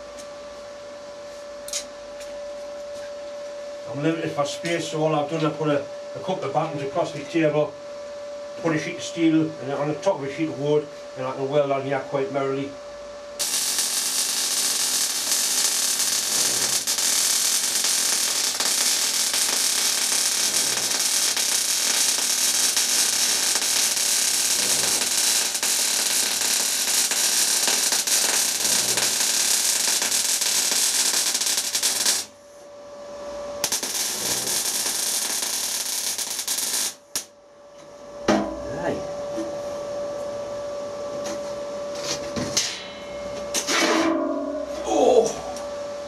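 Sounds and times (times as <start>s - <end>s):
welding arc crackling: 13.4s - 32.4s, 33.6s - 37.3s.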